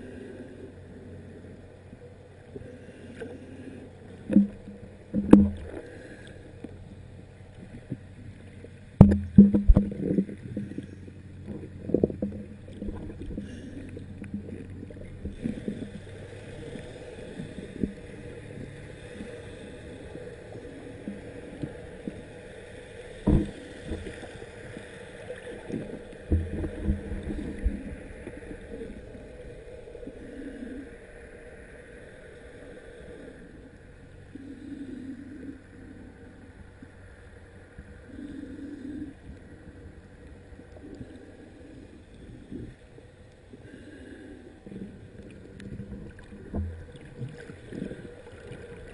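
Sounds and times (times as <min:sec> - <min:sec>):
faint steady hum: 0:00.0 - 0:48.9
underwater knocks and thumps: 0:04.3 - 0:05.9, 0:09.0 - 0:10.8, 0:11.4 - 0:13.5, 0:23.2 - 0:24.2, 0:25.7 - 0:28.0, 0:45.7 - 0:48.6
water gurgling underwater: 0:04.3 - 0:05.9, 0:08.9 - 0:10.8, 0:11.4 - 0:16.1, 0:25.3 - 0:29.0, 0:44.7 - 0:48.9.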